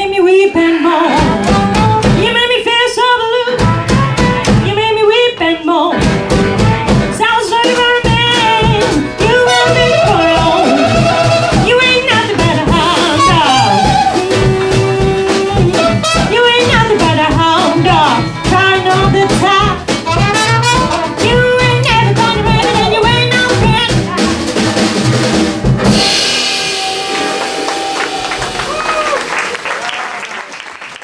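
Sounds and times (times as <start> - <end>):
acoustic band playing jazzy music: 0.0 - 29.3
audience applause: 26.5 - 31.0.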